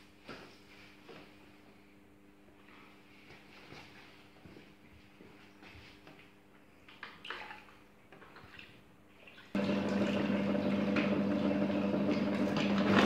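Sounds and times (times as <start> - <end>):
water sloshing in a pot: 6.8 - 13.0
plucker electric motor humming: 9.6 - 13.0.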